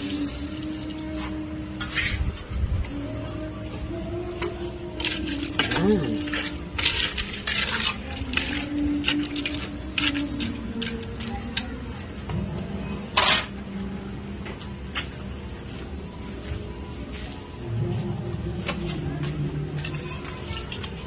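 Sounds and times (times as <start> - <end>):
metal spoon scraping a pot: 5.0 - 11.3.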